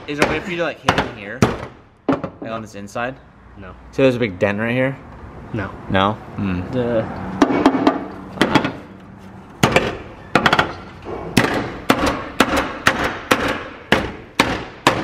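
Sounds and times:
hammer striking car fender: 0.0s - 2.4s, 7.4s - 8.9s, 9.6s - 15.0s.

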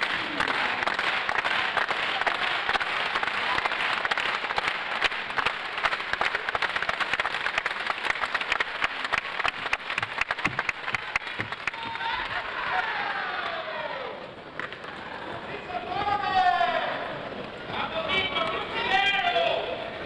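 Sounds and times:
crowd applauding: 0.0s - 15.3s.

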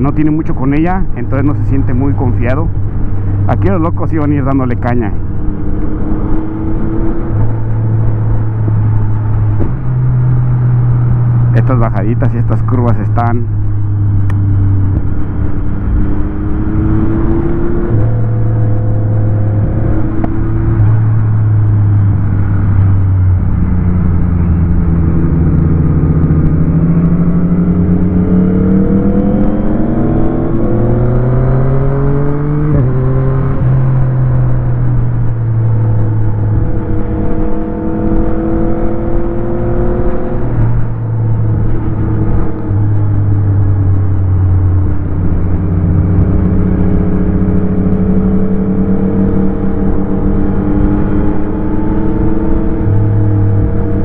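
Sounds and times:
motorcycle engine shifting gears: 1.0s - 11.8s, 13.5s - 54.0s
wind on microphone: 13.4s - 54.0s.

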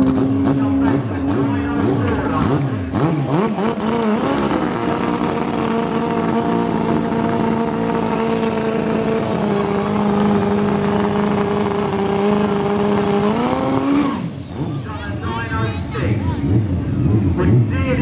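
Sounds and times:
motorcycle engine at high revs: 0.0s - 15.0s.

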